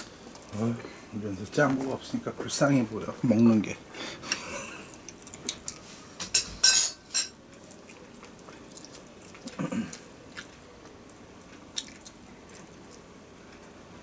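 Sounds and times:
child biting and chewing: 4.8 - 6.0, 7.5 - 13.6.

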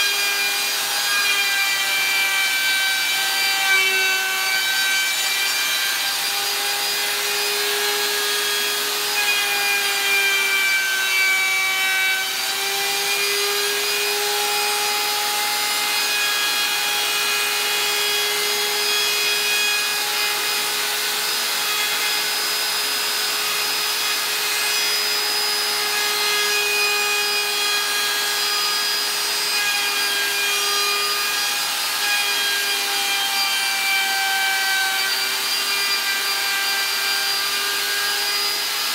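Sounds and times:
router whining cutting plastic: 0.0 - 38.9.

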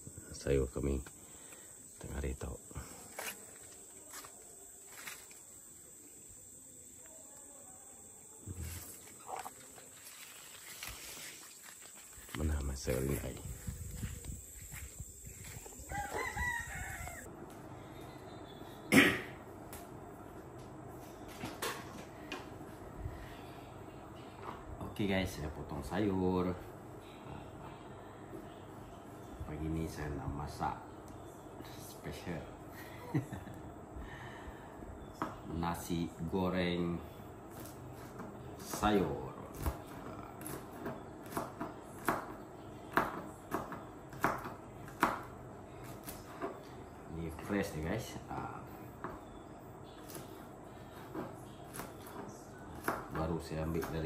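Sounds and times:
rooster crowing: 15.6 - 17.3
knife chopping vegetables: 51.1 - 54.0.

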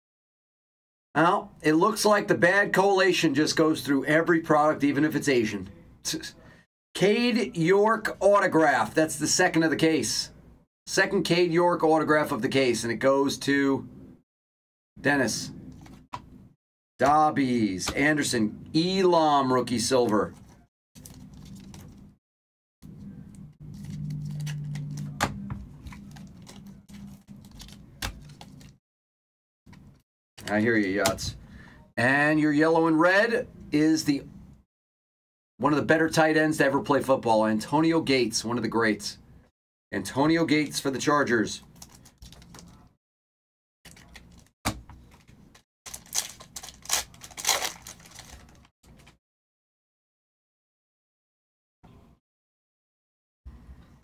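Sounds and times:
cards and wrapper rustling: 19.8 - 22.2, 23.0 - 28.8, 41.6 - 42.9, 43.9 - 49.2.

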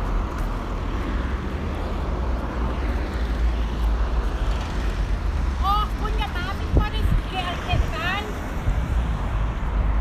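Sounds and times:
street noise with low rumble: 0.0 - 10.0.

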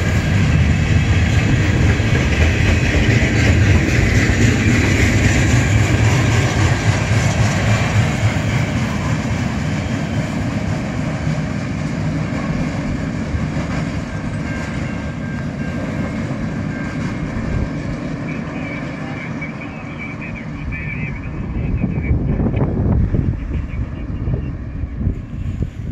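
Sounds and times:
train wheels rolling on rails: 0.0 - 20.6.

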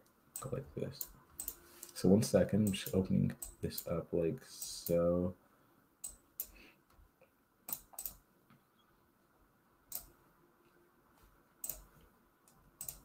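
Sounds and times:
computer clicks: 0.4 - 2.0, 7.7 - 8.2, 9.9 - 10.1, 11.6 - 11.9, 12.8 - 13.0.

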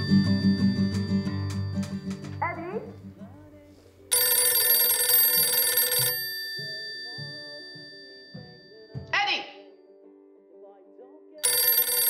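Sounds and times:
telephone bell ringing: 0.0 - 3.0, 4.1 - 9.6, 11.4 - 12.0
quiet background music: 0.0 - 12.0.

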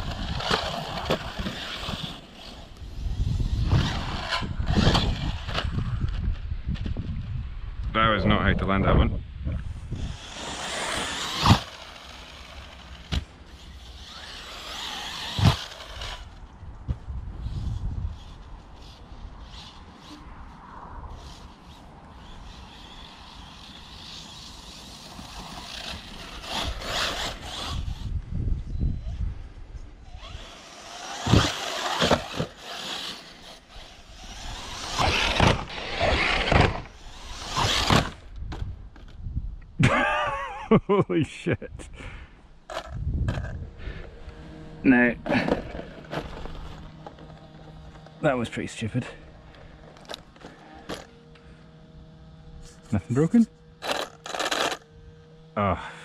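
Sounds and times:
electric motor whining: 0.0 - 6.3, 9.5 - 39.1, 42.6 - 56.0
tyres tearing through grass: 0.0 - 6.9, 9.6 - 28.2, 30.0 - 39.1, 52.6 - 54.9
wind rumble on microphone: 2.6 - 11.6, 15.3 - 23.2, 25.3 - 30.5, 33.7 - 40.0, 42.8 - 44.9
toy car chassis knocking ground: 14.0 - 17.0, 30.2 - 39.2, 50.0 - 51.1, 53.8 - 54.8.

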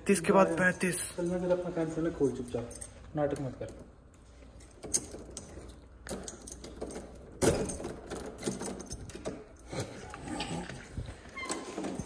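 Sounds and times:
key clicking and rattling in lock: 4.6 - 9.8.

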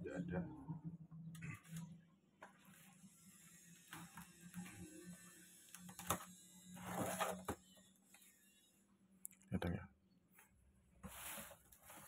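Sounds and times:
cardboard flaps scraping and rustling: 6.8 - 7.6, 11.0 - 12.0.

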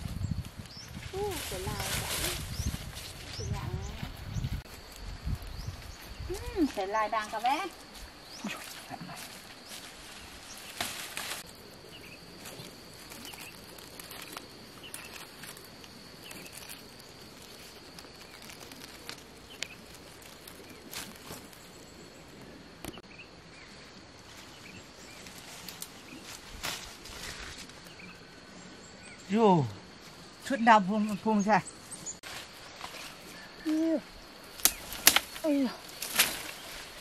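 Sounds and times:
leaves rustling in undergrowth: 0.0 - 22.8, 23.8 - 28.4, 31.8 - 37.0
twigs snapping: 10.6 - 11.6, 12.4 - 21.8, 25.2 - 27.8, 34.4 - 37.0.

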